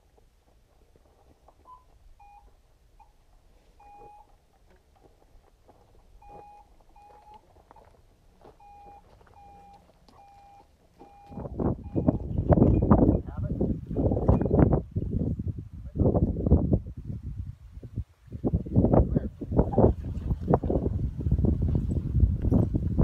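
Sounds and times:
variometer beeps: 1.7s - 3.1s, 3.8s - 4.3s, 6.2s - 7.4s, 8.6s - 13.2s.

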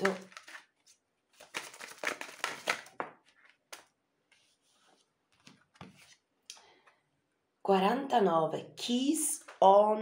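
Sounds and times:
cards shuffling: 0.0s - 4.6s.

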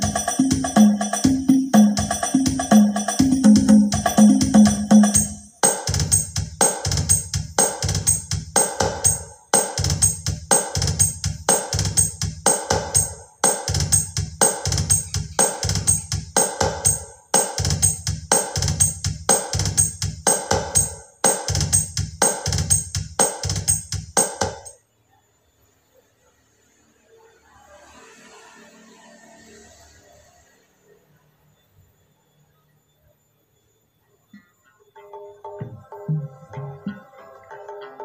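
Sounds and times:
drum-heavy music with deep bass: 0.0s - 24.7s.

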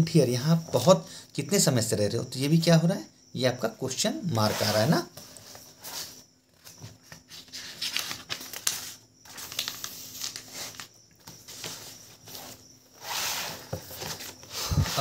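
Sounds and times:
paper pages rustling: 4.5s - 15.0s.

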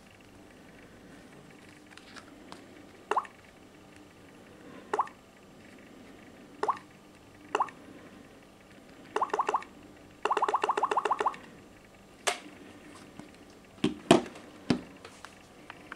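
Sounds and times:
phone water-drop blips: 3.1s - 3.3s, 4.9s - 5.2s, 6.6s - 6.8s, 7.5s - 7.8s, 9.2s - 11.4s.

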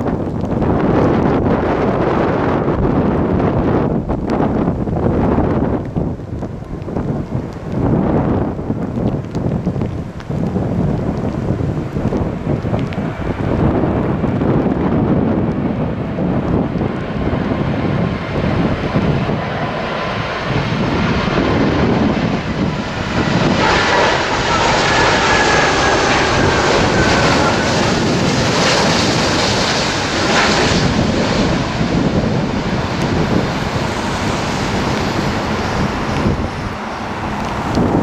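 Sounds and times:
jet airliner passing overhead: 0.0s - 38.0s
wind buffeting microphone: 0.0s - 38.0s.

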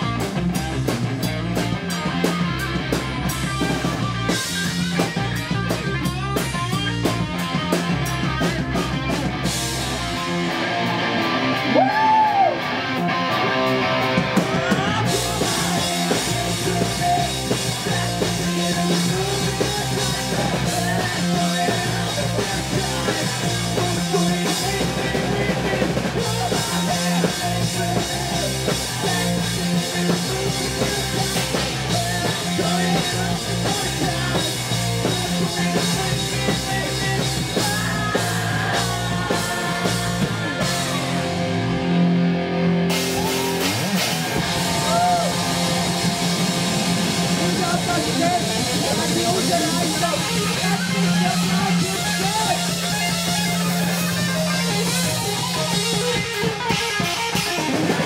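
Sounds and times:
bass guitar: 0.0s - 58.0s
drum kit: 0.0s - 58.0s
electric guitar: 0.0s - 58.0s
singers on vocals: 14.4s - 41.5s.

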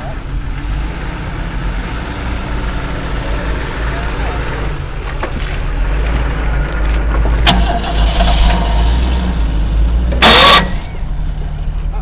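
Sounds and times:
off-road vehicle engine running: 0.0s - 12.0s
loud burst of noise: 10.2s - 10.9s.

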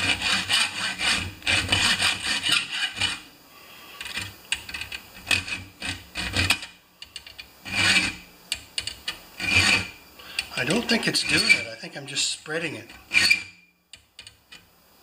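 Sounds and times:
hacksaw cutting metal: 0.0s - 3.2s, 5.2s - 6.7s, 7.7s - 8.2s, 9.4s - 9.9s, 11.2s - 11.6s, 13.1s - 13.5s.

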